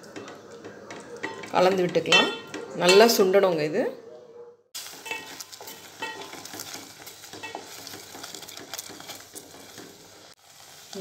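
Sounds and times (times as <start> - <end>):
mixture sizzling: 4.8 - 11.0
spatula scraping metal pot: 5.0 - 10.4.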